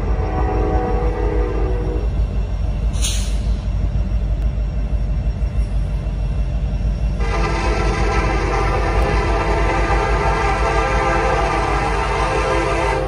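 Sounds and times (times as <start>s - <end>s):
train low rumble: 0.0s - 13.0s
locomotive air horn blast: 0.1s - 2.1s, 7.2s - 13.0s.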